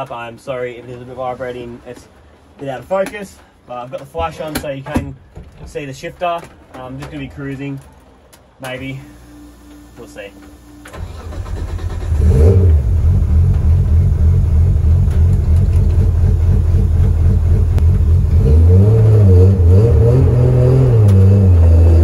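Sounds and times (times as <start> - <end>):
car engine starting and idling: 6.9 - 22.0
car engine revving through gears: 10.9 - 22.0.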